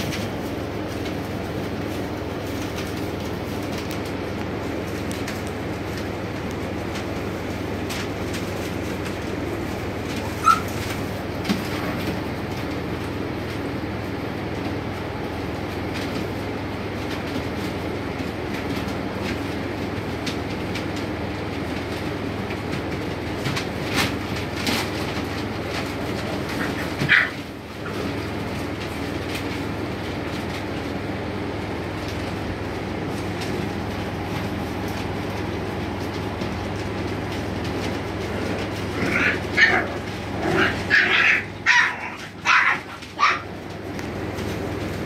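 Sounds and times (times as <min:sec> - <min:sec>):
steady low hum: 0:00.0 - 0:45.0
puppy squeak: 0:10.4 - 0:10.8.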